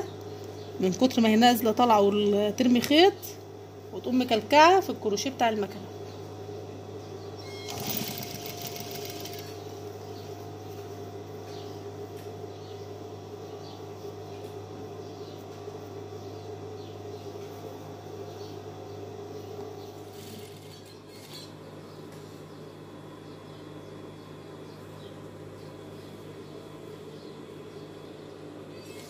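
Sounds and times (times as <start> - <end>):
faint hum: 0.0 - 29.0
industrial sewing machine stitching: 7.5 - 9.6.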